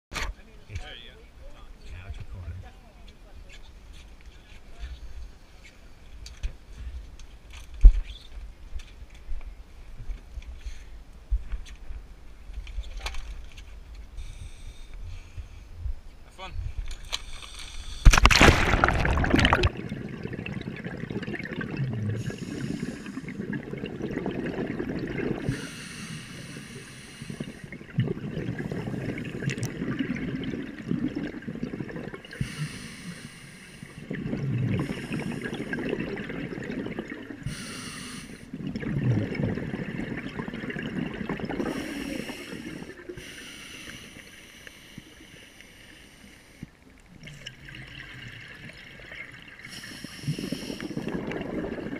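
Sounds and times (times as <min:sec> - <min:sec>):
hissing in-breath: 0:14.2 - 0:15.7, 0:22.2 - 0:23.4, 0:25.4 - 0:27.7, 0:32.3 - 0:34.1, 0:37.4 - 0:38.5, 0:41.6 - 0:46.7, 0:49.6 - 0:51.1
bubbling out-breath: 0:18.0 - 0:44.0, 0:47.2 - 0:51.9.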